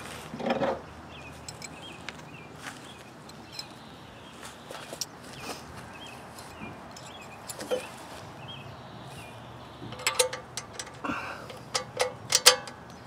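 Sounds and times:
small metal clicks and clinks: 0:01.4 - 0:01.9, 0:03.2 - 0:03.8, 0:06.4 - 0:07.9, 0:09.9 - 0:13.0.

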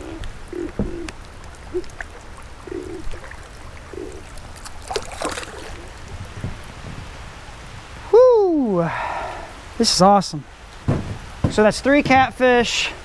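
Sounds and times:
water sloshing and gurgling: 0:00.0 - 0:07.6
rain hiss: 0:00.0 - 0:13.0
fish splashing in water: 0:01.1 - 0:06.3.

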